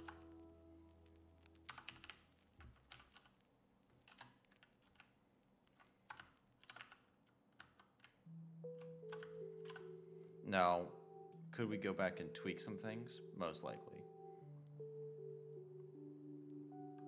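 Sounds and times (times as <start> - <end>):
faint background music: 0.0 - 3.3, 8.2 - 17.0
keyboard keys clicking: 0.0 - 10.1, 13.6 - 17.0.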